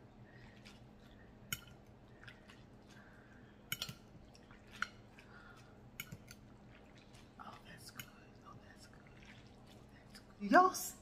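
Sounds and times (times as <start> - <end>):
faint steady hum: 0.0 - 11.0
wet clicks and drips from spoon: 1.4 - 3.0, 3.7 - 10.2.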